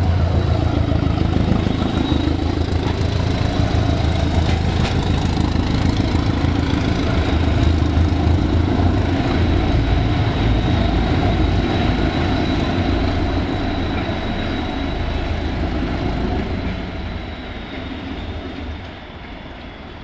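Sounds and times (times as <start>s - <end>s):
diesel train engine rumbling: 0.0s - 20.0s.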